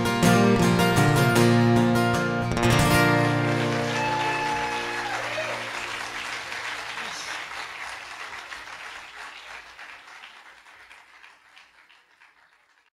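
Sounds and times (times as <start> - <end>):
audience applause: 2.6 - 12.9.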